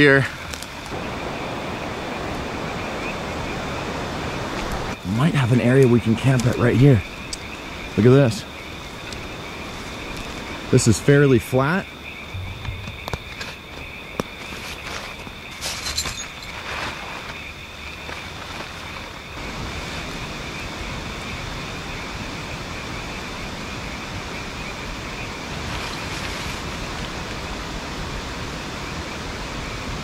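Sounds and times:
even rushing noise: 12.2 - 14.0
high two-pitch whine: 12.3 - 13.5
short knocks: 12.3 - 13.6.

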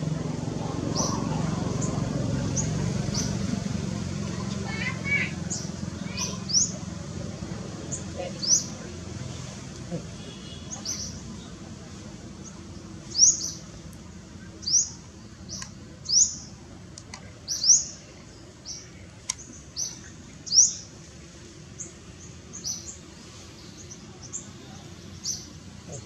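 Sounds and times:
bird chirping: 0.9 - 3.5, 12.4 - 13.7, 14.4 - 16.6, 17.4 - 20.9.

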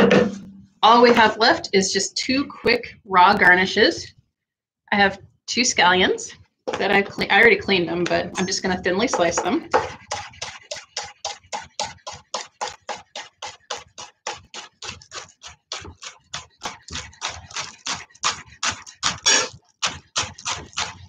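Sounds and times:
knife slicing on wooden board: 9.7 - 21.0.

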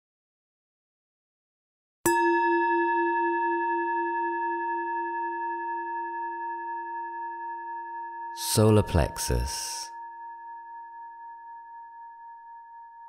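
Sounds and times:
singing bowl ringing: 2.1 - 8.4, 9.9 - 13.0.

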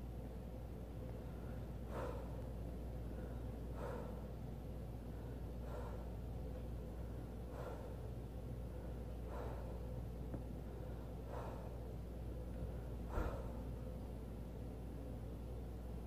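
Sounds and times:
steady low hum: 0.0 - 16.0
man breathing hard: 1.2 - 13.9.

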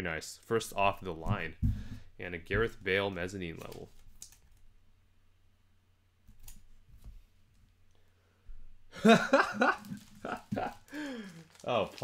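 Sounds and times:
trading cards clicking: 3.6 - 4.6.

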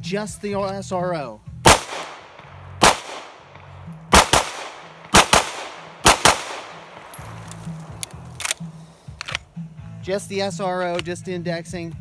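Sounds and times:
pistol shots: 1.6 - 8.6.

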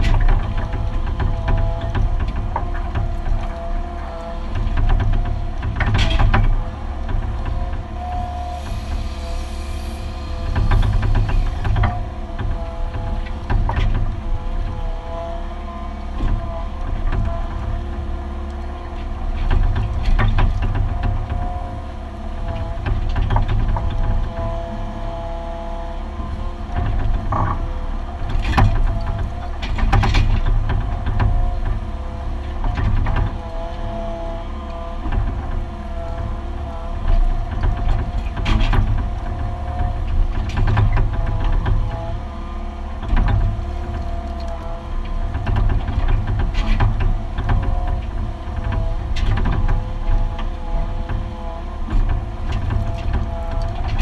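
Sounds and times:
whining tones: 0.0 - 30.0
diesel engine rumbling under load: 0.0 - 54.0.

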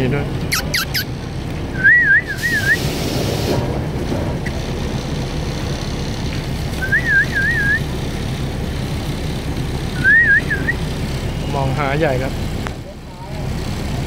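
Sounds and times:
dog whining: 0.5 - 1.1.

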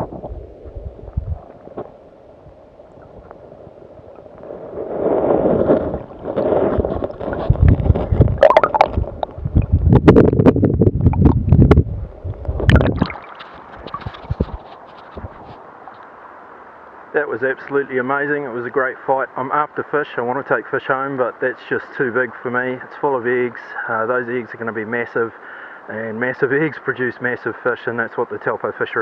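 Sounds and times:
underwater sloshing and gurgling: 0.0 - 16.4
fish splashing and churning water: 2.6 - 9.4, 12.6 - 16.0.

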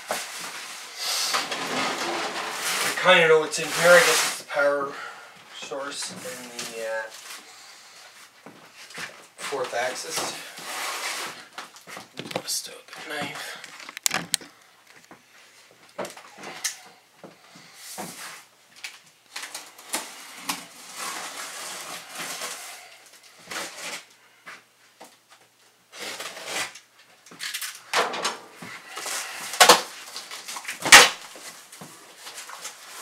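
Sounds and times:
cardboard flaps scraping and rustling: 0.0 - 4.6, 19.4 - 22.8
knife slitting packing tape: 25.9 - 27.8, 28.8 - 31.3.

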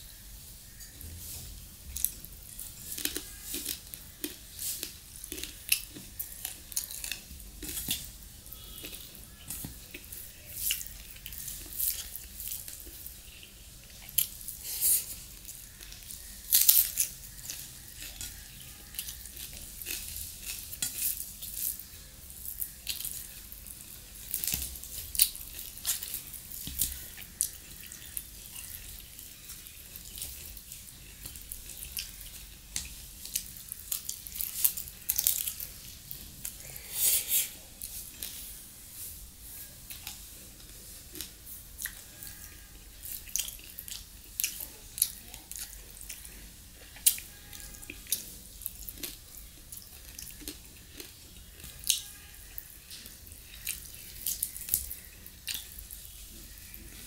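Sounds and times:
wet chewing and lip-smacking: 43.1 - 52.0, 52.8 - 57.0.

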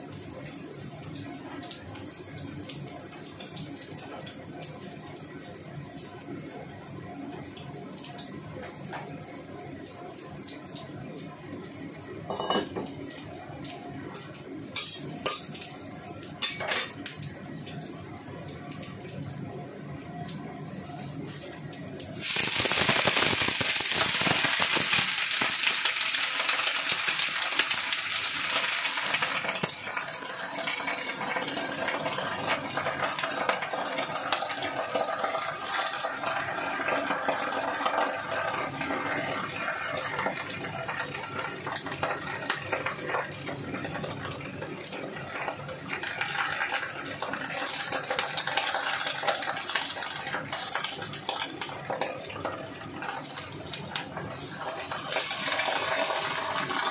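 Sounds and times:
cabbage sizzling in hot oil: 9.1 - 18.0, 22.1 - 56.9.

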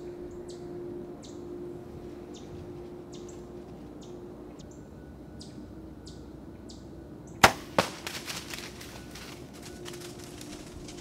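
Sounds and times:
bow shot crack: 7.4 - 8.0
deer running through dry leaves: 7.4 - 11.0.

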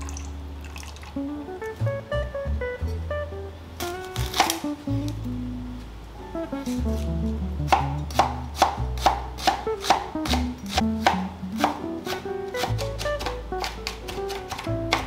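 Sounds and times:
background music: 0.0 - 15.0
knife chopping on cutting board: 4.1 - 4.6, 7.7 - 15.0.

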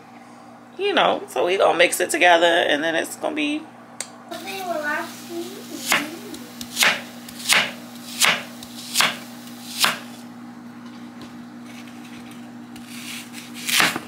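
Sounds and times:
knife cutting on wooden board: 5.8 - 10.2, 12.8 - 14.0.

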